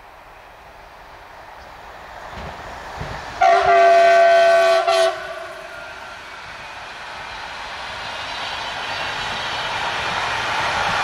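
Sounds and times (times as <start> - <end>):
train rumbling on rails: 0.0 - 11.0
train horn blast: 3.4 - 6.0.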